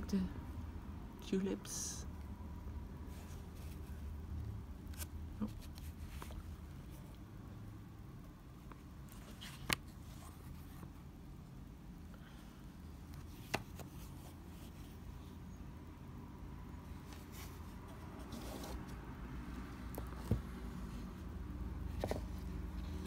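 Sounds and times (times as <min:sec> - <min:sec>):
book rubbing and rustling: 0:03.0 - 0:04.2, 0:04.8 - 0:07.2, 0:08.6 - 0:11.4, 0:13.0 - 0:15.4, 0:16.8 - 0:23.0.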